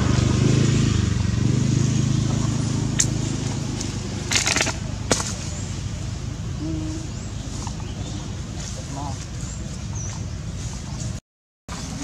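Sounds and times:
engine humming: 0.0s - 12.0s
sharp crackles: 3.8s - 5.5s.

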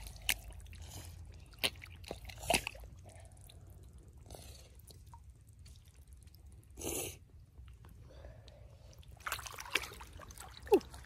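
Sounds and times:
hands splashing in puddle: 9.2s - 11.0s
sharp splashes: 9.2s - 11.0s.

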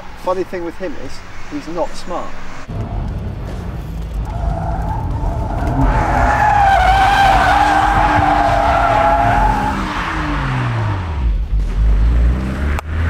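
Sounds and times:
car engine at high revs: 2.3s - 13.0s
tyres squealing: 2.4s - 11.1s.

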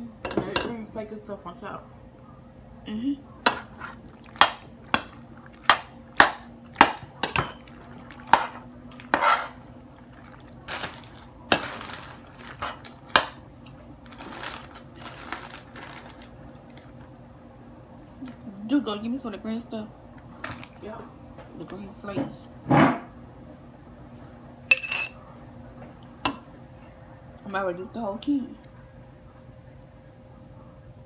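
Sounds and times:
wet scraping of thick pasta: 3.5s - 5.9s, 7.6s - 13.1s.

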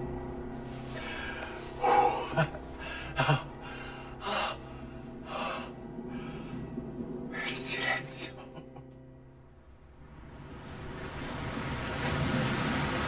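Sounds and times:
faint low drone: 0.0s - 13.0s
man sobbing and gasping: 1.2s - 4.7s.

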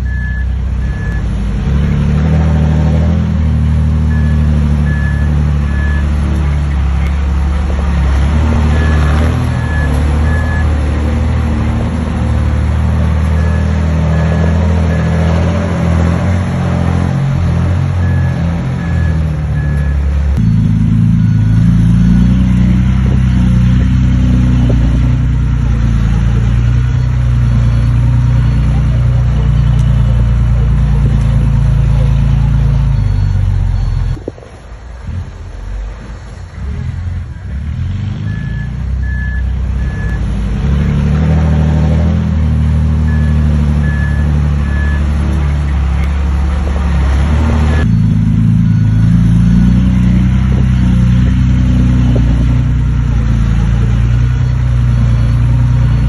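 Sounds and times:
reversing alarm beeping: 0.0s - 2.1s, 4.0s - 6.6s, 8.2s - 11.2s, 13.3s - 16.0s, 17.4s - 30.4s, 31.6s - 34.3s, 37.3s - 40.4s, 43.0s - 46.1s, 47.2s - 56.0s
heavy diesel machinery running: 0.0s - 56.0s.

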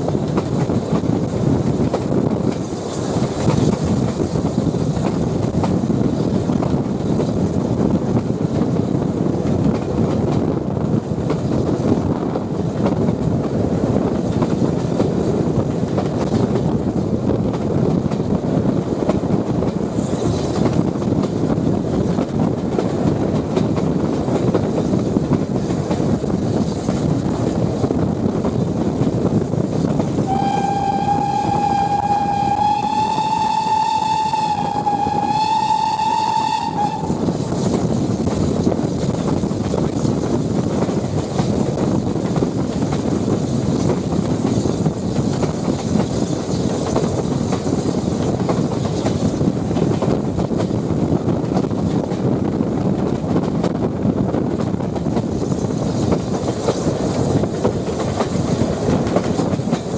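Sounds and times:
train carriage rumbling on rails: 0.0s - 59.9s
steam whistle long note: 30.2s - 37.2s.

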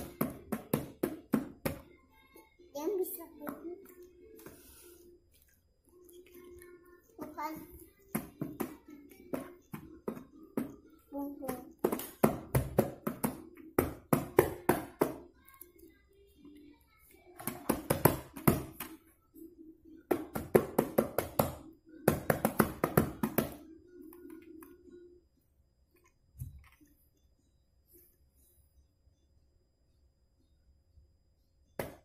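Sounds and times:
toy drum slapped by hand: 11.4s - 15.2s, 20.1s - 23.6s.

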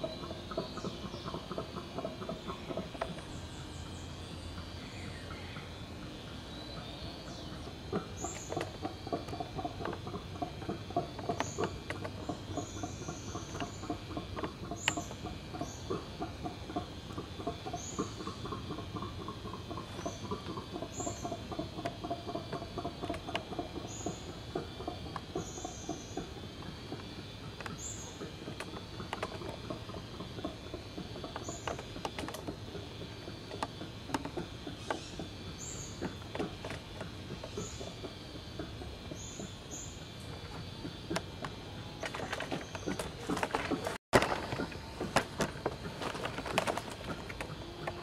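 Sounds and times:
bird chirping: 0.0s - 48.0s.

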